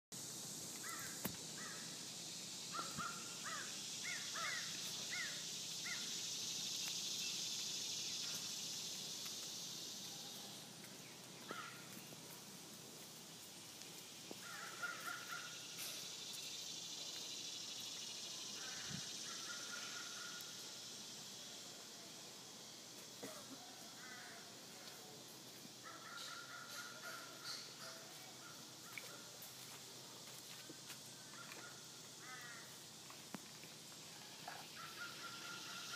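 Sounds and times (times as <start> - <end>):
high-pitched hiss: 0.1 - 35.9
crows cawing: 0.8 - 1.9, 2.7 - 6.1, 11.4 - 11.9, 14.4 - 15.7, 18.6 - 20.5, 24.0 - 24.4, 25.8 - 27.6, 31.4 - 32.7, 34.8 - 35.9.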